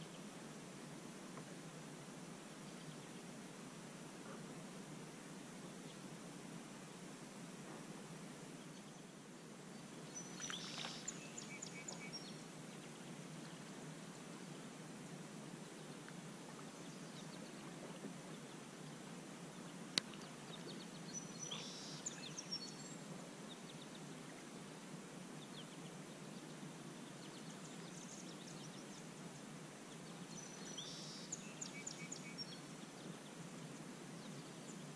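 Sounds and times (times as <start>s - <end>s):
low background noise: 0.0s - 34.9s
small birds chirping: 19.6s - 24.1s.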